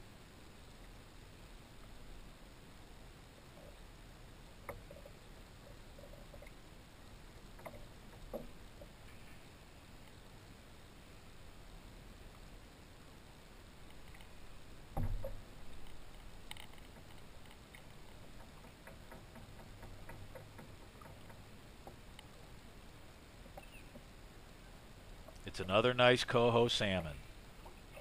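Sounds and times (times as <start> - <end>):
background hiss: 0.0 - 28.0
light clicks and ticks: 13.8 - 14.4, 15.2 - 22.4, 25.2 - 25.8.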